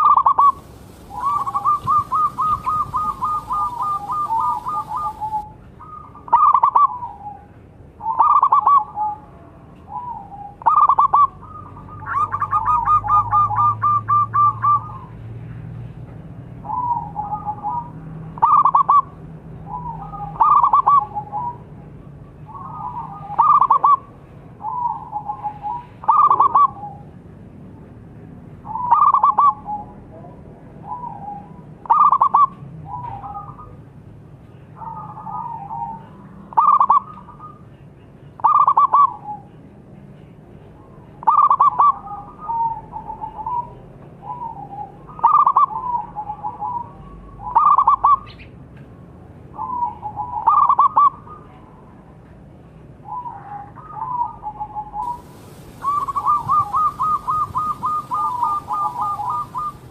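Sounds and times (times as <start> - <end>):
dove cooing: 0.0 - 9.3, 9.9 - 15.1, 16.7 - 19.1, 19.7 - 21.6, 22.5 - 27.1, 28.7 - 29.9, 34.8 - 37.6, 41.2 - 48.2, 49.6 - 51.3, 53.1 - 59.9.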